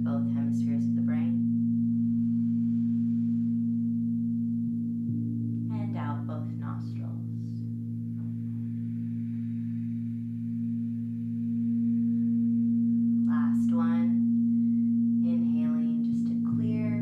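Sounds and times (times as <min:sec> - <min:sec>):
crystal singing bowls ringing: 0:00.0 - 0:17.0.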